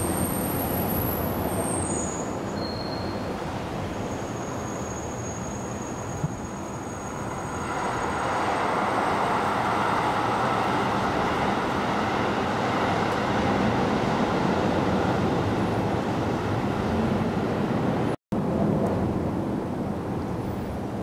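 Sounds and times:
passing vehicle rushing: 6.2 - 18.2.

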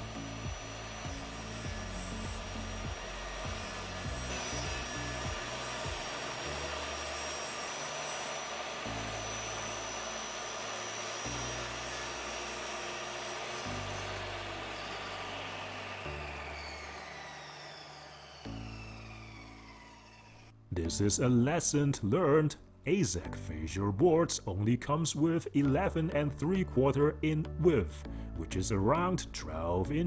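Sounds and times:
table saw whining: 0.0 - 20.6.

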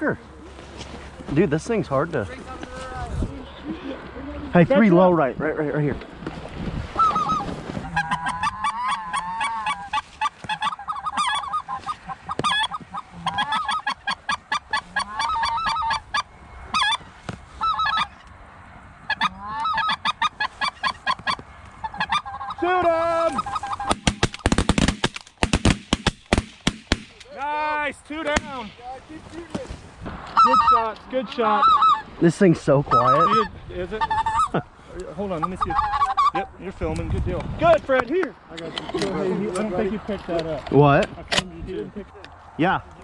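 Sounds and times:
geese honking: 6.9 - 18.3, 19.0 - 24.7, 30.3 - 32.2, 32.8 - 34.6, 35.2 - 36.5
muffled shotgun shots: 23.9 - 27.2.

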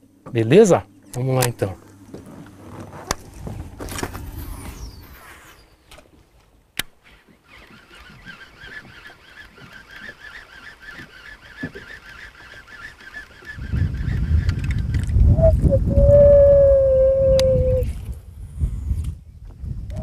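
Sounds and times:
fishing line whizzing off reel: 2.8 - 6.0, 6.8 - 15.3.

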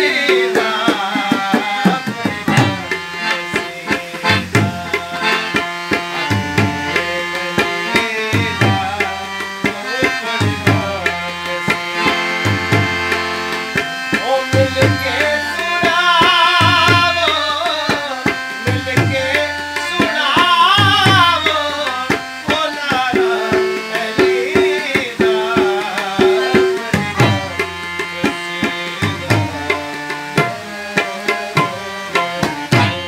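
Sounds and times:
man singing ornamented lines: 0.0 - 33.0
tabla playing: 0.0 - 33.0.

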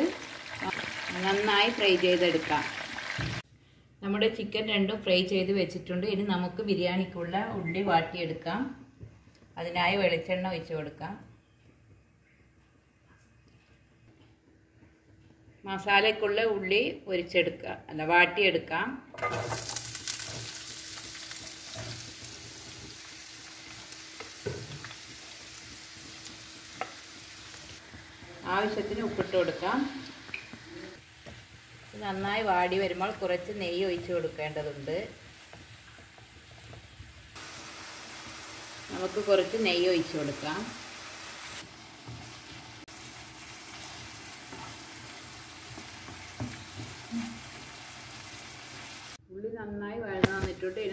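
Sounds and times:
onions sizzling in hot oil: 0.0 - 3.4, 19.2 - 49.2.

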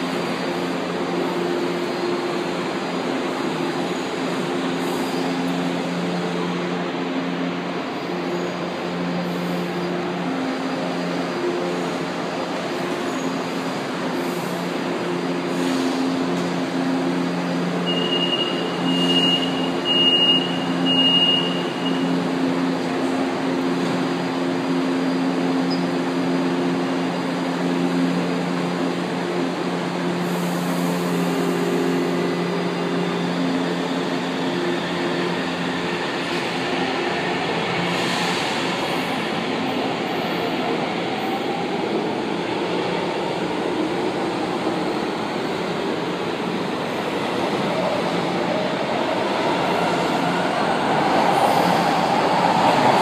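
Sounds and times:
train humming: 0.0 - 53.0
door warning beeps: 17.8 - 22.0.

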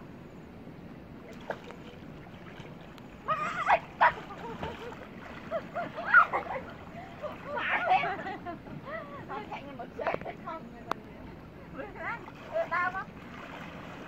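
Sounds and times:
people calling out in water: 3.2 - 10.6.

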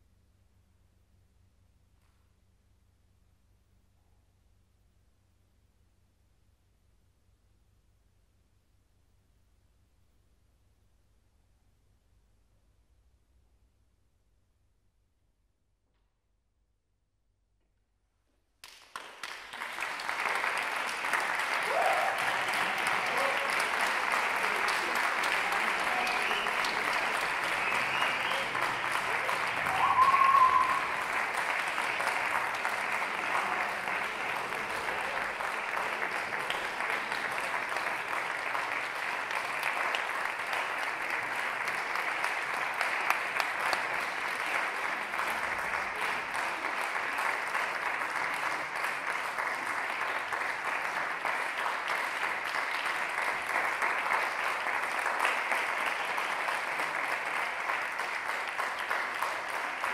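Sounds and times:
audience applauding: 18.6 - 59.9
short whistle: 27.6 - 28.6, 29.6 - 30.9.

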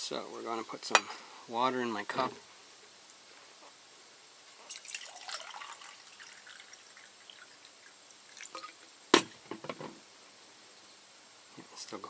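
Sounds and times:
water pouring into metal mug: 4.6 - 8.8.

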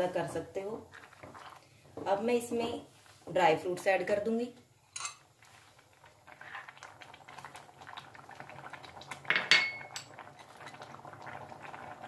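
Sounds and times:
thick food bubbling in a pan: 0.0 - 2.2, 5.2 - 12.0.

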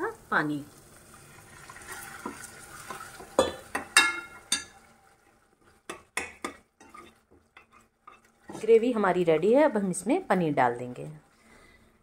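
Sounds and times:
spoon scraping and clinking pot: 1.8 - 4.8, 5.9 - 8.8.

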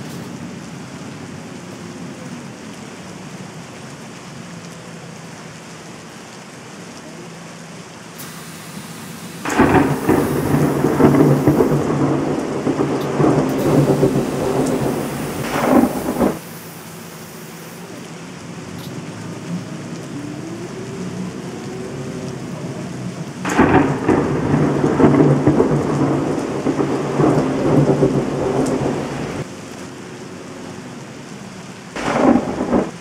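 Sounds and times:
rain hiss: 0.0 - 33.0
rolling thunder rumble: 8.2 - 33.0
low hum: 9.0 - 22.3.

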